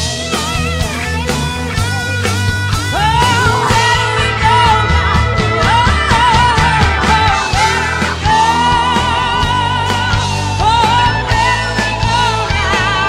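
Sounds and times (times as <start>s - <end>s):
bass and drums: 0.0s - 13.0s
woman singing lead: 2.8s - 13.0s.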